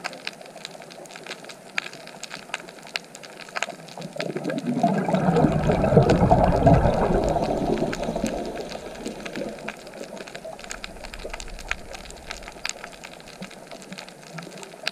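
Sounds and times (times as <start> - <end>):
reef clicks and crackle: 0.0 - 14.9
underwater diver bubbles: 3.4 - 14.9.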